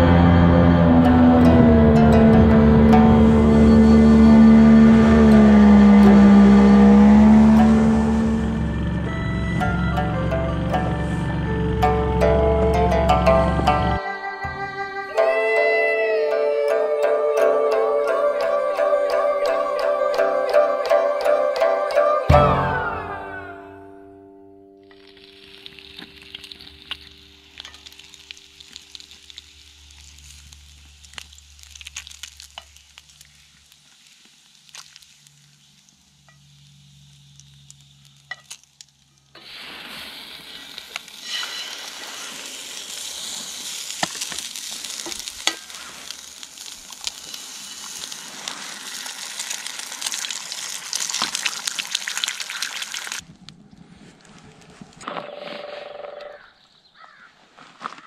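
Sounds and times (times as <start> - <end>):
fat sizzling in a skillet: 24.9 - 38.8, 39.4 - 53.2.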